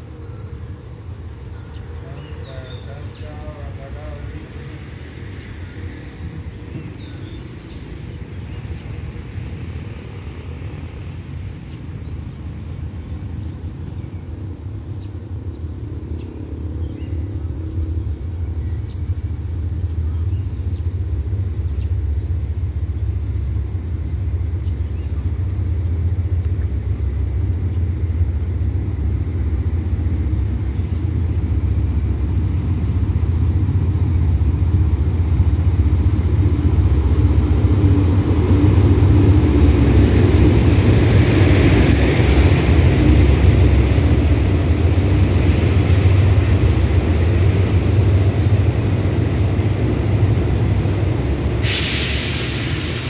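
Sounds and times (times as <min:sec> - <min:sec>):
locomotive engine rumble: 0:00.0 - 0:53.0.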